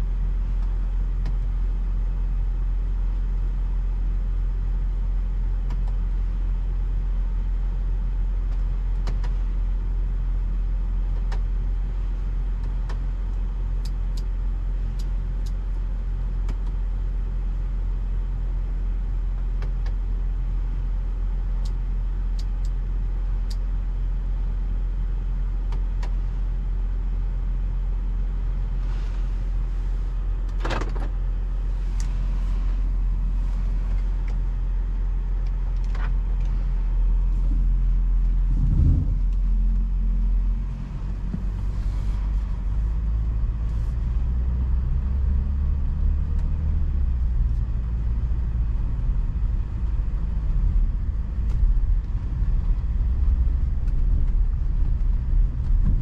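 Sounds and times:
car engine and tyres rumbling: 0.0s - 56.0s.

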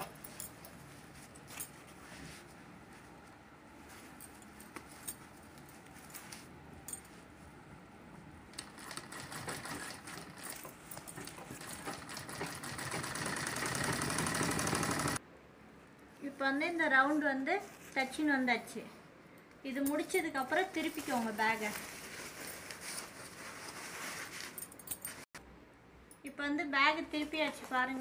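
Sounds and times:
sewing machine stitching: 8.6s - 15.2s.

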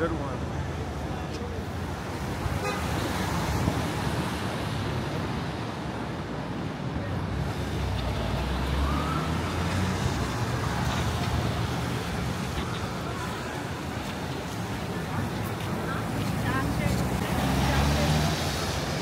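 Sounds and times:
cars passing: 0.0s - 19.0s
distant siren: 8.2s - 13.9s
tyres hissing on wet pavement: 10.8s - 19.0s.

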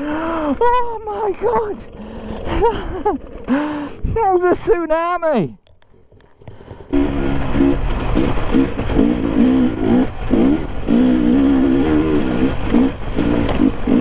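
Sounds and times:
dirt bike engine revving: 6.8s - 14.0s.

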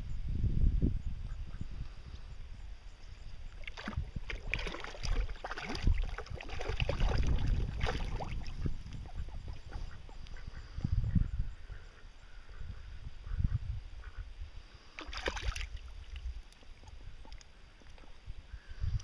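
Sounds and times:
duck splashing in water: 3.6s - 8.7s, 15.0s - 15.8s.

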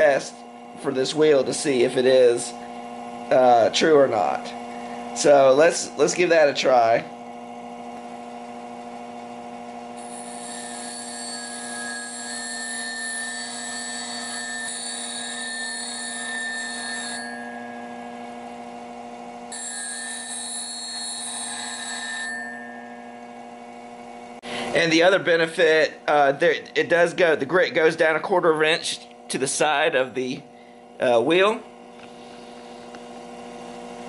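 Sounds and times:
bench grinder humming: 0.0s - 28.2s, 28.8s - 34.0s
drill bit grinding hiss: 9.7s - 23.8s.

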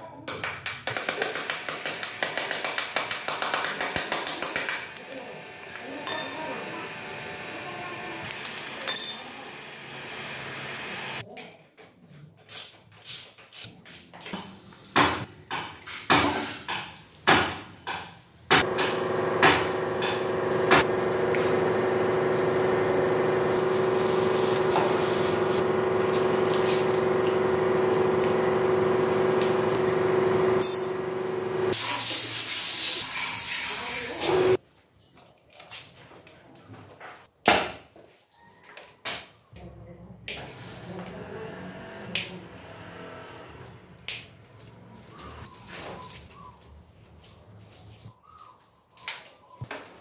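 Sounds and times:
steady mechanical hum: 4.5s - 11.2s, 18.5s - 31.8s
hand tools clinking on metal: 8.3s - 9.3s.

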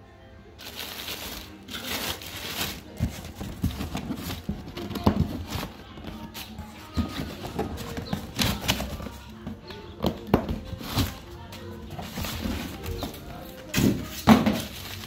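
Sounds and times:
plastic bag crinkling: 0.6s - 6.5s.

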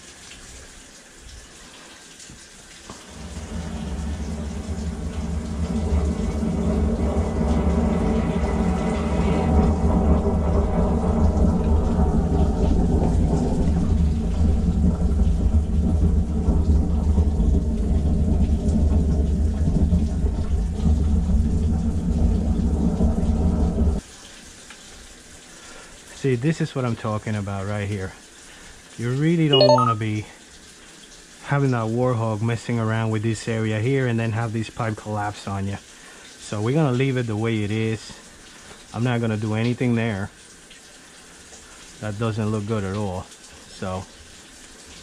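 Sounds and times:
sewer jetter rumbling: 3.0s - 24.0s.

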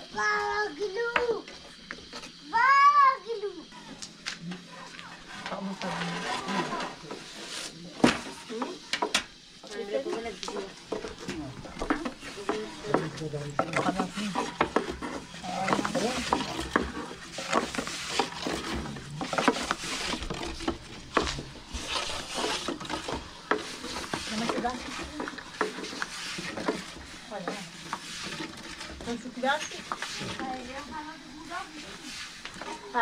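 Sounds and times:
dry rubbing and scraping: 10.8s - 33.0s.

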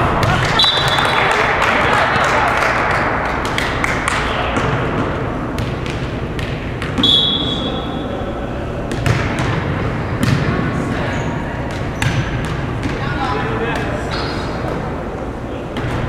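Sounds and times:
whistle blast: 0.6s - 1.2s, 7.0s - 7.8s.

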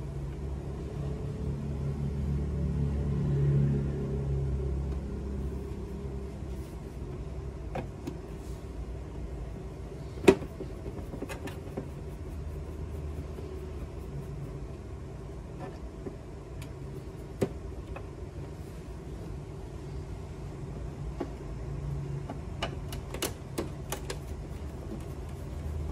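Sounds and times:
steady low rumble: 0.0s - 22.3s.

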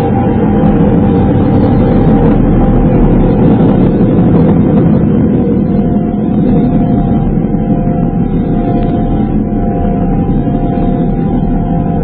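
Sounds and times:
dense low rumble: 0.0s - 12.0s
faint held tones: 0.0s - 12.0s.

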